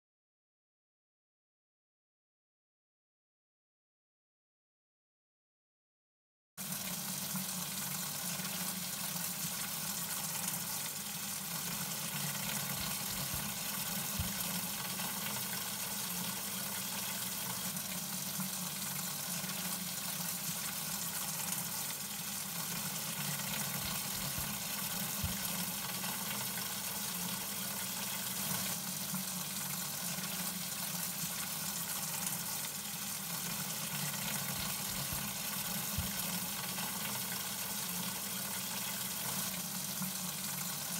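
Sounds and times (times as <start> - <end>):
water spraying into watering can: 9.4 - 15.5, 19.2 - 26.1, 30.8 - 36.8.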